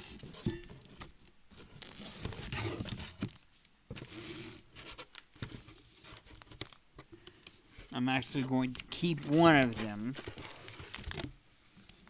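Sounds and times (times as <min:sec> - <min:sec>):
bags rustling and crinkling: 0:09.0 - 0:11.4.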